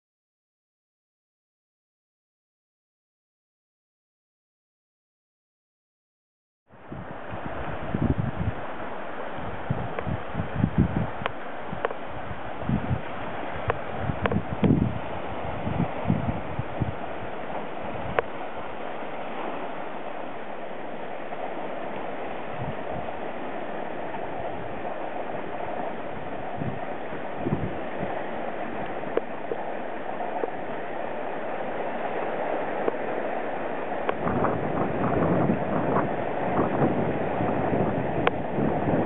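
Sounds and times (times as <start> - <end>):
wind buffeting microphone: 6.7 - 20.2, 21.4 - 39.0
sea washing over rocks: 6.8 - 39.0.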